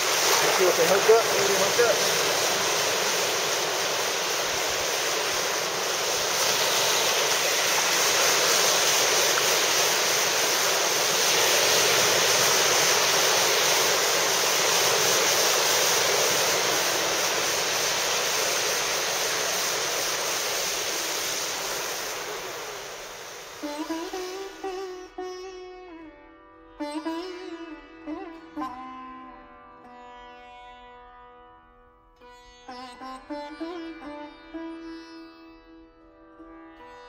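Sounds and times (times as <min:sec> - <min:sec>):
surf breaking on beach: 0:00.0 - 0:24.7.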